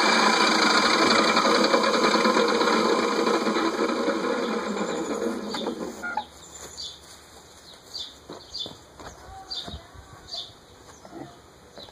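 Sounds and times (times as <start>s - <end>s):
bird chirping: 4.9s - 11.9s.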